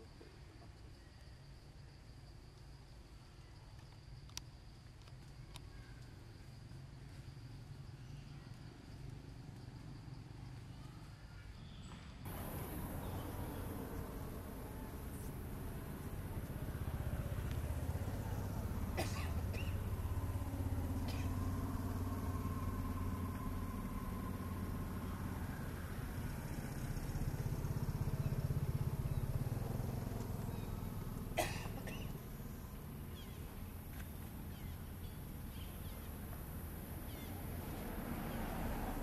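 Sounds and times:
low engine drone: 0:12.3 - 0:37.7.

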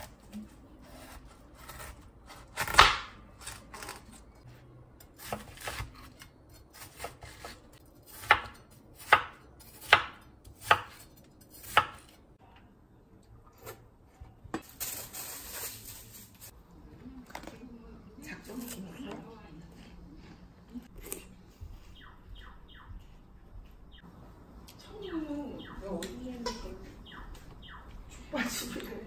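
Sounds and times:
knife chopping on cutting board: 0:06.8 - 0:11.0.

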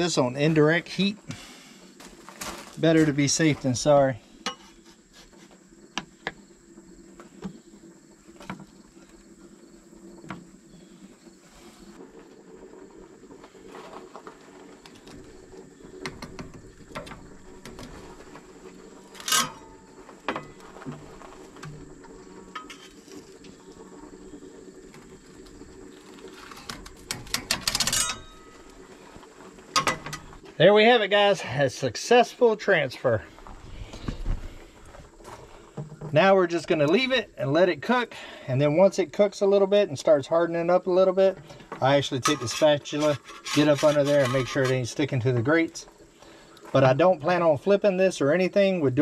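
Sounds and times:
metal spatulas scraping grill grate: 0:04.4 - 0:05.6, 0:19.1 - 0:19.8, 0:22.4 - 0:23.3, 0:42.1 - 0:45.2
ringing metal clank: 0:27.8 - 0:28.6.

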